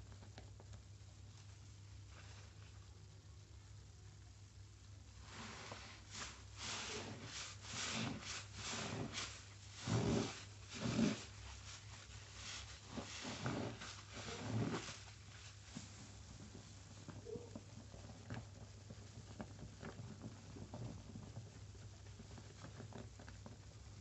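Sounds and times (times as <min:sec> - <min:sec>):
crackling suds: 0:05.1 - 0:16.7
wet sponge squelching: 0:05.2 - 0:16.1.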